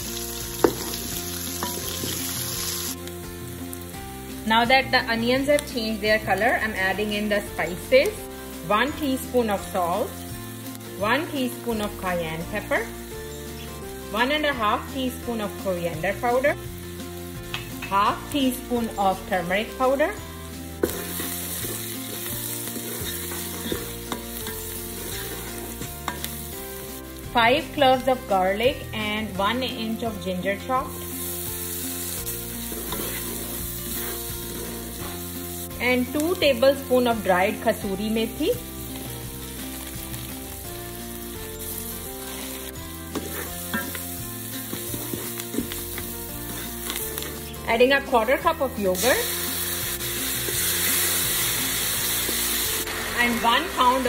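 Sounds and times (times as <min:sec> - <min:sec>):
onions sizzling in hot oil: 0:00.0 - 0:54.0
wooden spoon stirring and scraping: 0:20.8 - 0:26.5, 0:31.0 - 0:35.4, 0:41.4 - 0:47.7
wooden spoon stirring: 0:32.5 - 0:35.1, 0:42.1 - 0:47.5.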